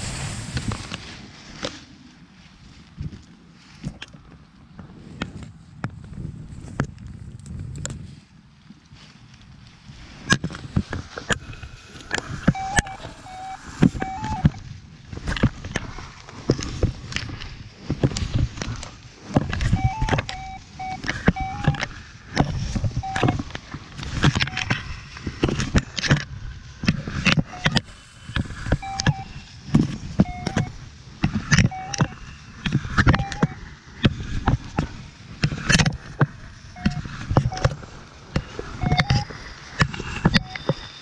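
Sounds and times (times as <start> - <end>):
clothing rubbing on microphone: 9.0 - 20.1
high piping notes: 11.4 - 14.6.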